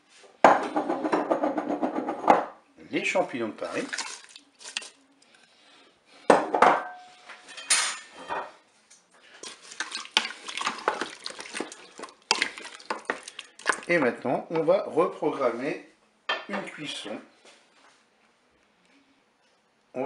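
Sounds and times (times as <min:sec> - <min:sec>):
wooden spatula scraping metal bowl: 0:09.3 - 0:14.1.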